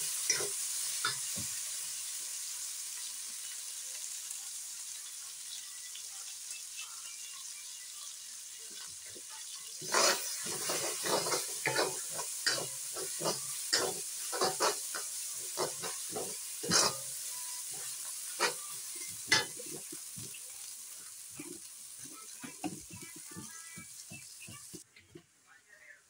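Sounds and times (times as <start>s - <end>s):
paste sizzling in hot oil: 0.0s - 24.8s
metal spatula scraping a wok: 0.1s - 1.3s, 9.8s - 20.1s.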